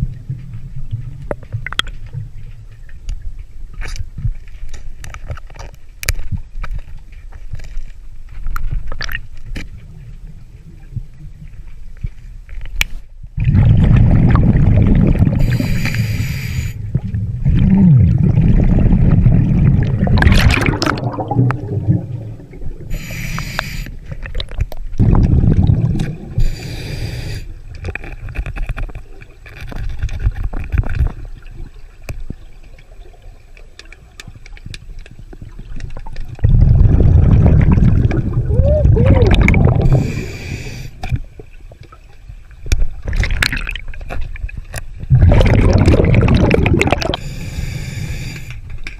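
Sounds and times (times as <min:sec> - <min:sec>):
rumbling exhaled bubbles: 0:13.3 - 0:15.8, 0:16.8 - 0:23.2, 0:24.0 - 0:27.0, 0:35.2 - 0:47.4
regulator hissing inhalations: 0:15.4 - 0:16.8, 0:22.9 - 0:24.0, 0:26.4 - 0:27.5, 0:39.8 - 0:41.0, 0:47.2 - 0:48.6.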